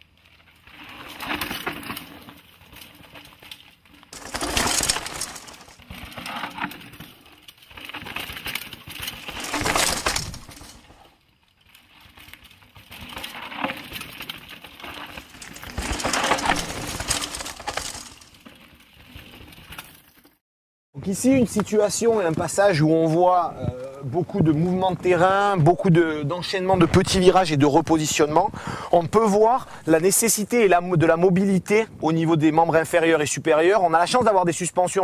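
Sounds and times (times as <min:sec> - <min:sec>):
bike tyres crunching on gravel: 0:00.2 - 0:20.3
bike clattering: 0:01.1 - 0:11.1, 0:12.1 - 0:20.2.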